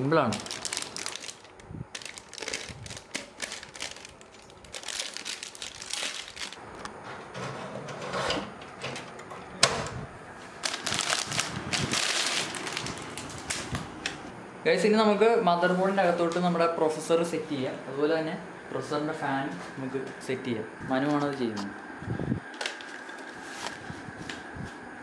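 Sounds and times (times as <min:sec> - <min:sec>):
foil bag crinkling: 0:00.0 - 0:06.6, 0:10.5 - 0:13.9.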